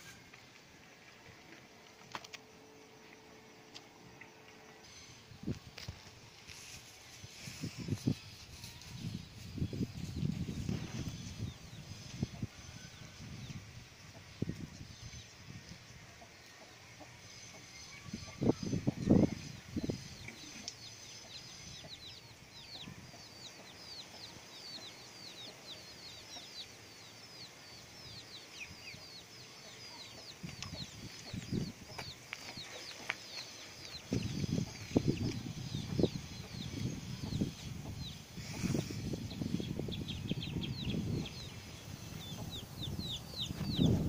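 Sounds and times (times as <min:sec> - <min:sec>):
bird chirping: 0:17.3 - 0:44.0.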